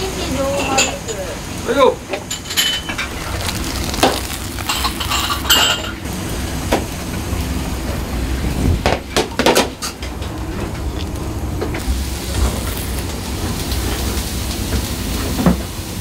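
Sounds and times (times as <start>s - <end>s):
bowls and utensils clattering: 0.5s - 1.2s, 2.1s - 6.1s.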